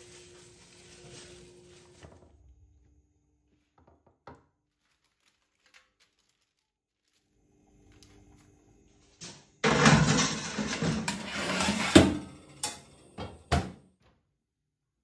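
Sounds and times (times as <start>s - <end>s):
metal tray clanking: 9.6s - 13.2s
metal tray scraping on oven runners: 9.6s - 13.2s.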